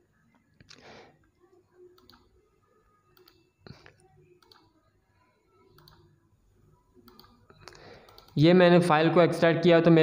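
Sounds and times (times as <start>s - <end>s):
faint computer mouse clicks: 1.9s - 2.3s, 3.1s - 4.7s, 5.7s - 6.1s, 7.0s - 8.4s.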